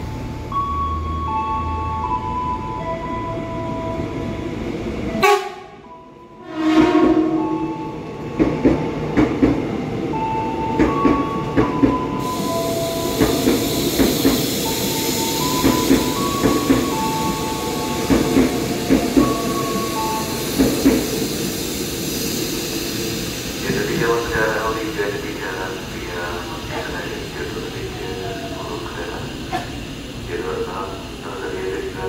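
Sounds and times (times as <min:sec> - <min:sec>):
train horn blast: 0:05.2 - 0:05.8, 0:06.4 - 0:07.7
hiss: 0:12.2 - 0:17.1, 0:18.1 - 0:31.9.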